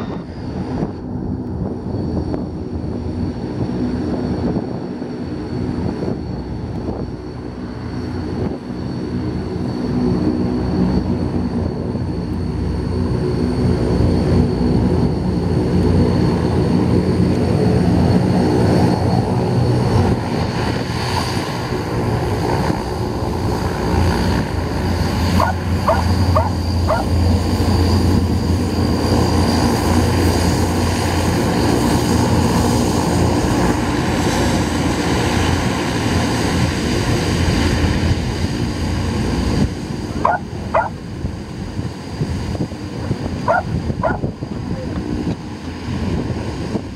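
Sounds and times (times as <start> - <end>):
thin high whine: 0.0 - 0.8
propeller drone: 0.0 - 46.9.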